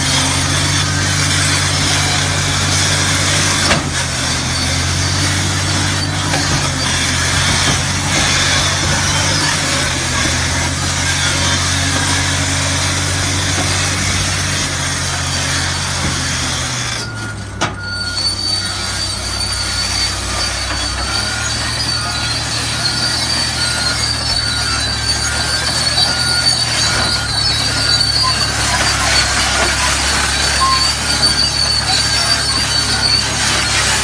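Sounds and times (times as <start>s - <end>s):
diesel engine running under load: 0.0s - 34.0s
high steady squeal: 0.0s - 34.0s
tracks clattering and crunching: 0.0s - 34.0s
reverse alarm beeping: 16.9s - 34.0s.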